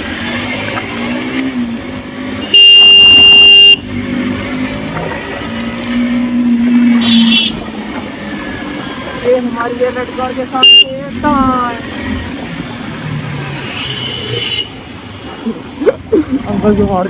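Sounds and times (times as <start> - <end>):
horn blast: 2.4 - 3.8.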